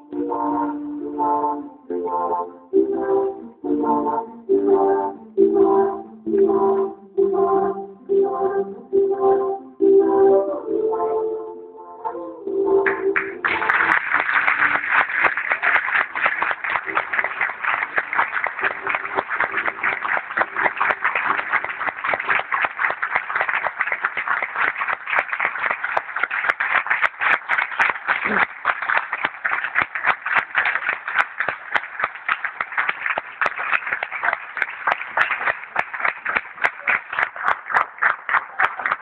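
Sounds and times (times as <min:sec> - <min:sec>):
audience applauding: 0:12.8 - 0:39.0.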